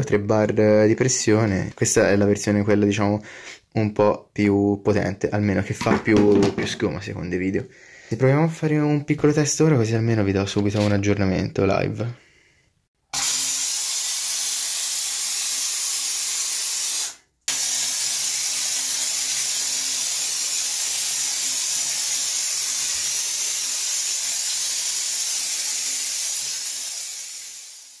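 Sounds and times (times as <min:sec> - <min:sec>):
foam sprayer hissing: 0:13.2 - 0:28.0.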